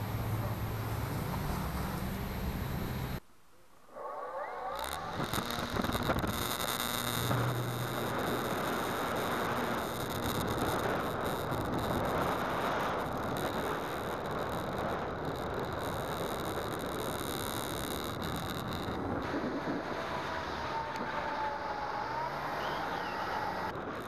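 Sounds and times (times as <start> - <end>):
electric motor whine: 0.0 - 3.2, 3.9 - 24.0.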